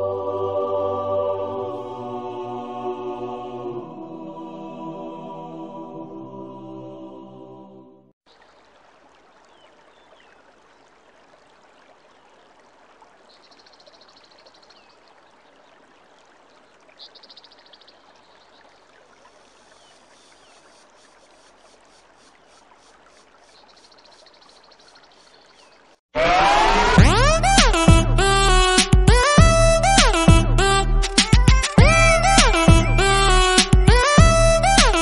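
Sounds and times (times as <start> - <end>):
loud electronic music: 26.2 - 35.0.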